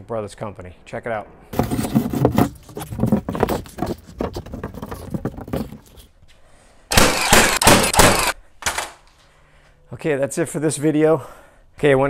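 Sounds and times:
wooden panel scraping and knocking: 1.6s - 6.1s.

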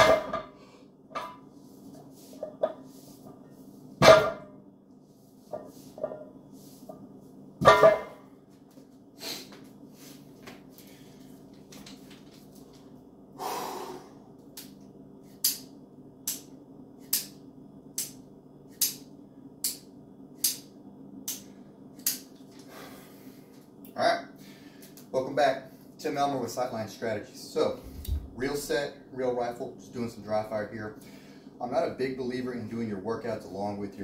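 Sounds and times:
barbell thudding on floor: 4.0s - 4.5s, 7.6s - 8.2s.

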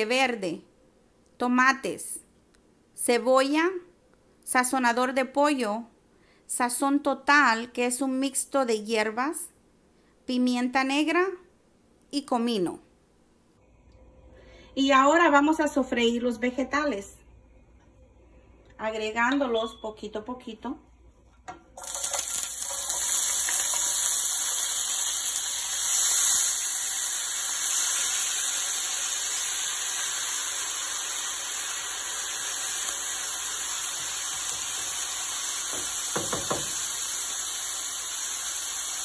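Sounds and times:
vegetables sizzling in hot oil: 21.8s - 39.0s.

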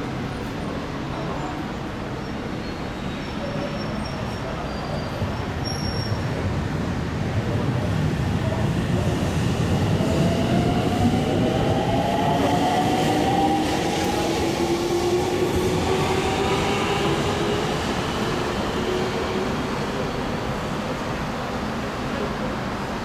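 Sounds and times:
train wheels rumbling on rails: 6.0s - 23.0s.

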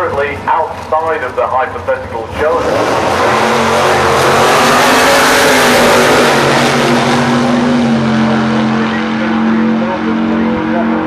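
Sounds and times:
racing car engines full throttle: 0.0s - 11.0s.

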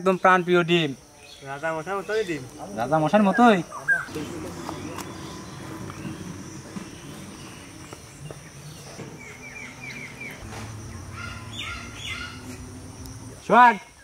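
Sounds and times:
birds chirping: 0.1s - 14.0s
faint low hum: 4.0s - 13.5s.

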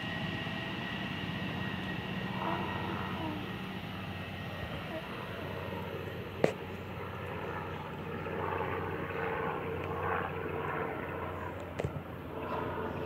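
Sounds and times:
electric train motors humming: 0.0s - 7.2s.

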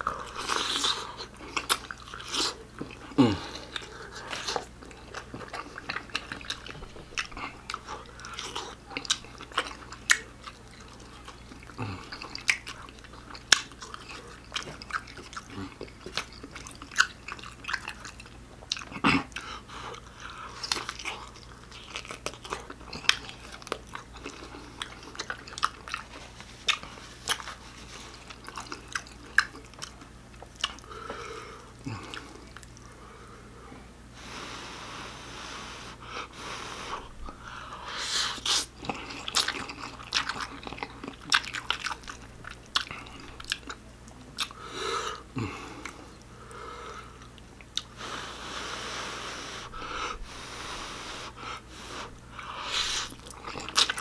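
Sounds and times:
chewing noodles: 0.0s - 32.9s, 37.0s - 44.6s, 51.9s - 54.0s
noodle slurping: 48.0s - 54.0s.

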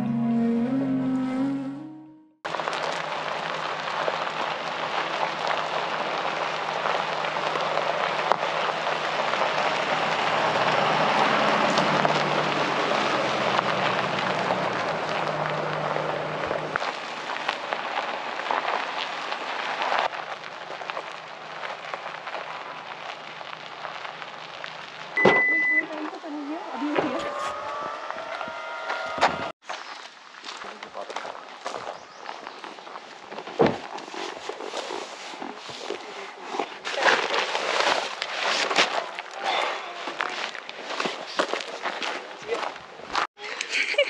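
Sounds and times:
heavy rain: 2.5s - 25.2s.

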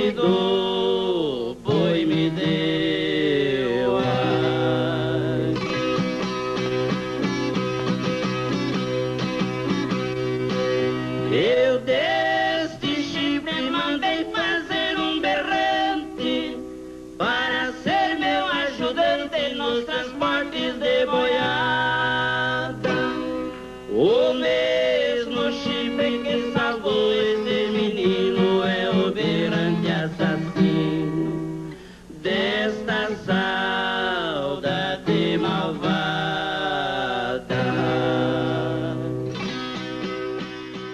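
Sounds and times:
men singing in harmony: 0.0s - 5.8s, 11.3s - 39.2s
strummed ten-string guitar: 0.0s - 40.9s
viola strumming: 4.0s - 12.0s, 18.2s - 24.1s, 37.5s - 40.9s.

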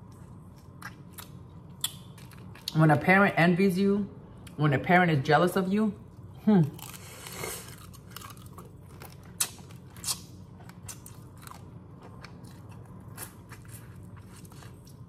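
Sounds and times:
wet chewing and sucking: 6.8s - 15.0s.

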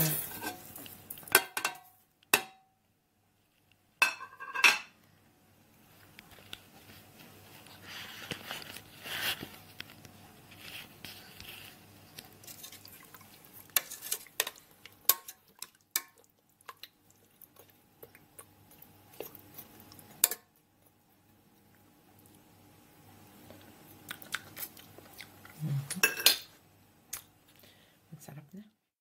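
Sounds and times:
utensil clinking on metal pot: 1.3s - 2.6s, 4.0s - 4.9s, 13.8s - 16.2s, 20.2s - 20.5s.

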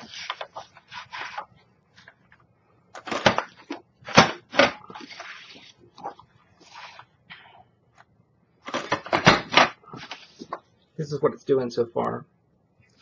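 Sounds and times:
cardstock rustling: 0.0s - 2.3s, 3.0s - 7.1s.

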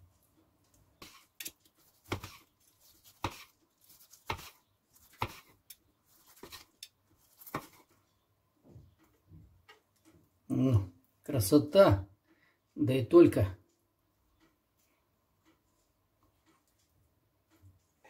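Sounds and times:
knife slicing steak: 1.0s - 7.8s.

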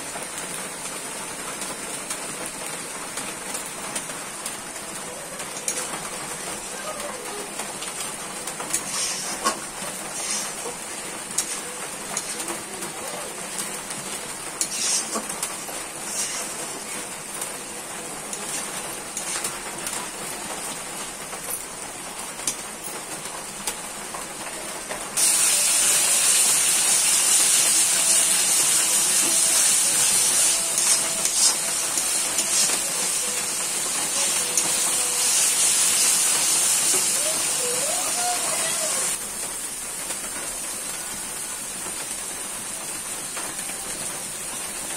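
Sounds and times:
masala sizzling in hot oil: 7.8s - 21.2s, 25.2s - 44.9s
metal spatula scraping a wok: 14.6s - 15.2s, 16.1s - 16.6s.

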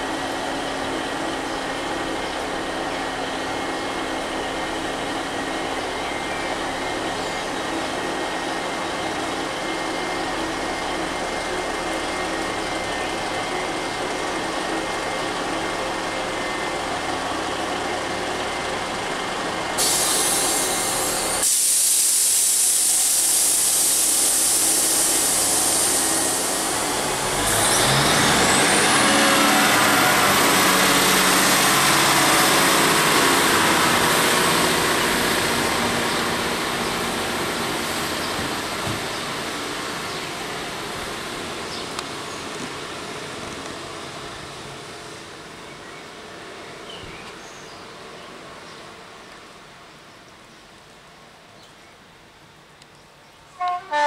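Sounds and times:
train engines revving: 0.0s - 50.0s
diesel train idling hum: 0.0s - 54.0s
compressed air hiss: 19.8s - 26.8s.

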